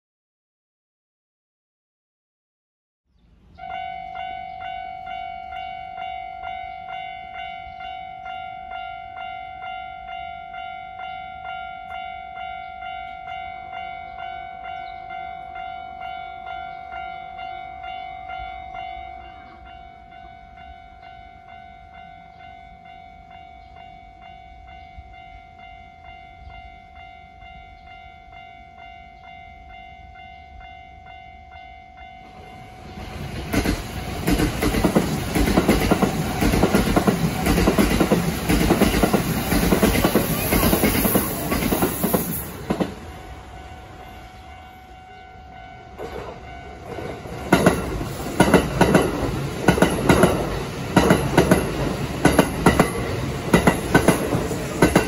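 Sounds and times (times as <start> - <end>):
level-crossing warning bell: 3.6 - 55.0
train wheels clattering on rails: 32.3 - 43.2, 45.9 - 55.0.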